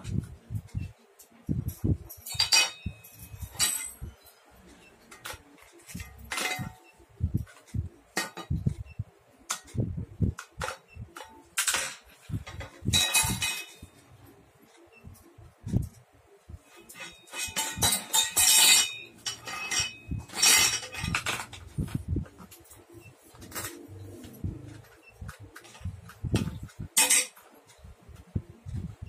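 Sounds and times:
sharp metallic clinks: 1.7s - 4.4s.

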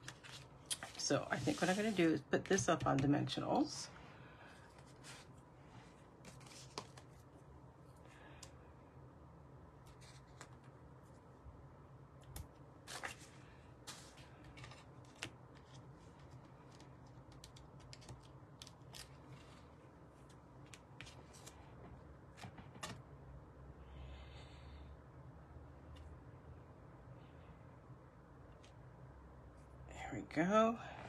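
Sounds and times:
paper rustling: 4.7s - 7.2s, 9.9s - 10.7s, 12.9s - 19.7s.

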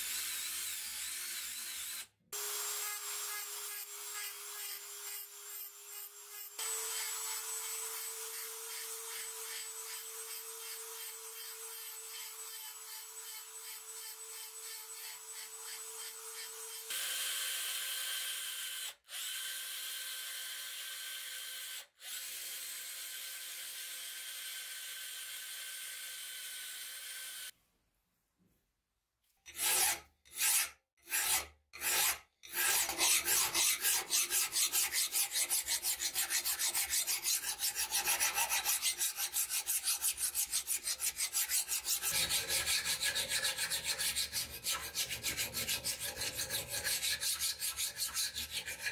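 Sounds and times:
rotary tool grinding metal: 0.0s - 17.0s, 29.5s - 48.9s
hand file scraping metal blade: 29.4s - 48.9s.

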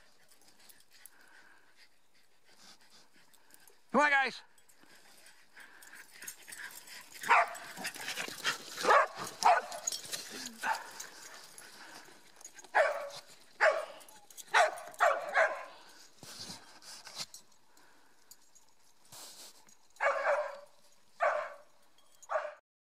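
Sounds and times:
dog barking: 7.3s - 7.7s, 8.8s - 9.8s, 10.6s - 11.0s, 12.7s - 15.8s, 20.0s - 21.7s, 22.3s - 22.6s.

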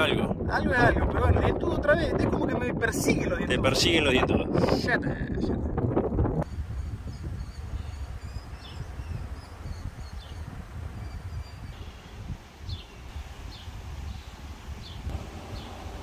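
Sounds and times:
wind rumble on microphone: 0.0s - 16.0s
small birds chirping: 6.4s - 16.0s.

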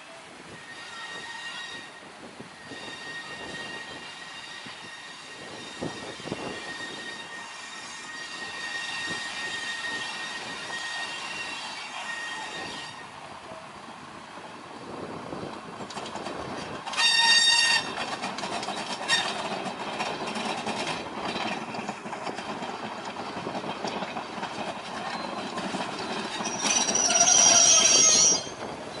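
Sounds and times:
diesel train engines: 0.0s - 29.0s
shrill brake squeal: 0.5s - 13.2s, 16.9s - 18.0s, 25.0s - 29.0s
wheels rumbling over track: 12.4s - 29.0s
train horn blast: 16.9s - 18.0s.

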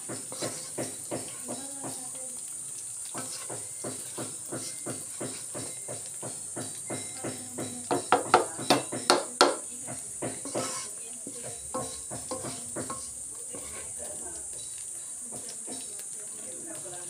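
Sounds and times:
spatula knocking against pan: 0.0s - 2.0s, 3.2s - 13.9s, 15.3s - 15.9s
hotdogs sizzling in oil: 0.0s - 17.0s
spatula scraping a wok: 0.0s - 17.0s.

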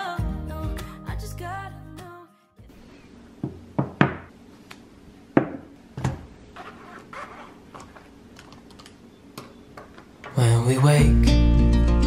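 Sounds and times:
objects knocking on wooden table: 3.4s - 4.3s, 5.4s - 6.2s.

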